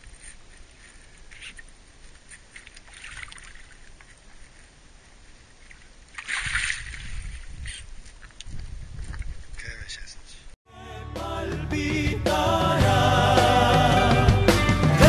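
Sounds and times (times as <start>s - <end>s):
faint water lapping: 0.0s - 9.5s
fish splashing at water surface: 2.3s - 4.2s.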